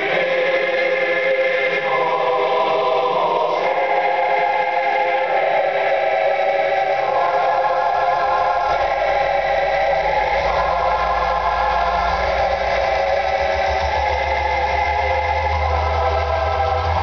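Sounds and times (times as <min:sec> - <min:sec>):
choir-like music with held chords: 0:00.0 - 0:17.0
deep rumble: 0:08.0 - 0:17.0.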